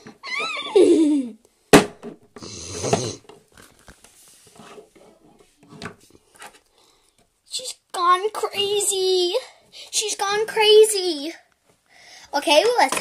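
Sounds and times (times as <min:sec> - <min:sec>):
child imitating horse whinny: 0:00.2 - 0:01.4.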